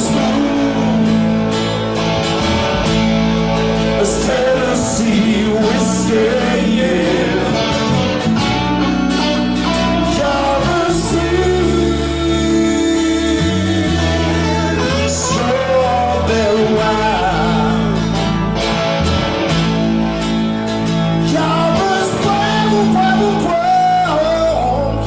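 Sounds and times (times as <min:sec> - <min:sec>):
man singing: 0:00.0 - 0:01.8, 0:03.9 - 0:08.0, 0:09.2 - 0:18.3, 0:21.2 - 0:25.0
electric bass: 0:00.0 - 0:25.0
electric guitar: 0:00.0 - 0:25.0
strummed acoustic guitar: 0:00.0 - 0:25.0.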